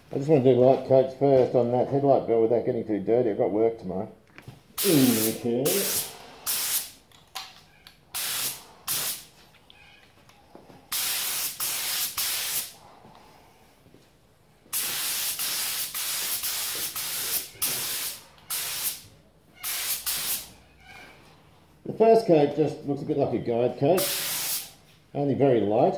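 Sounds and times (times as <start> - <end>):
paint spray gun hissing: 4.8 - 7.0, 8.2 - 9.3, 10.9 - 12.7, 14.7 - 19.0, 19.6 - 20.5, 24.0 - 24.7.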